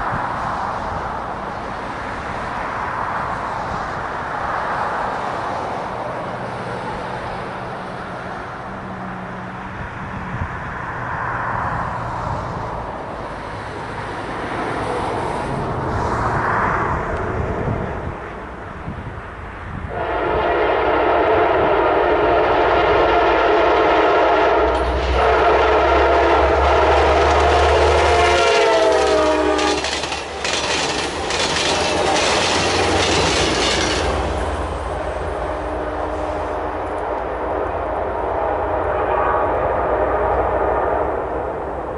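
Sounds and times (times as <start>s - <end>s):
train passing at speed: 0.0s - 41.9s
locomotive air horn: 19.9s - 30.6s, 35.3s - 37.0s, 38.3s - 41.3s
diesel engine droning: 20.0s - 40.4s
wheels clicking over rail joints: 27.0s - 34.8s.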